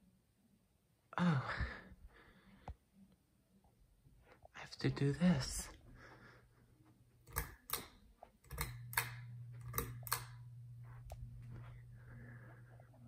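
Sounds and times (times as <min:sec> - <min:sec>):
fan motor humming: 0:07.0 - 0:13.0
pull-chain switch clicking: 0:07.3 - 0:10.4.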